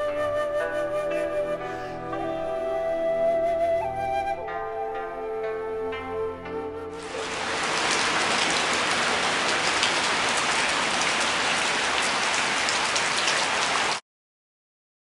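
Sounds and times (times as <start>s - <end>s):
rain falling on water: 7.0s - 14.0s.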